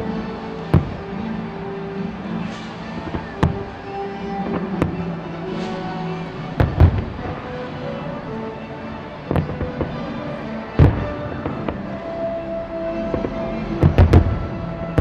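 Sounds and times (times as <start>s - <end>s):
background music: 0.0s - 15.0s
firework shells bursting: 0.0s - 15.0s
small firework cracks: 2.3s - 8.1s, 9.2s - 12.2s, 13.0s - 15.0s.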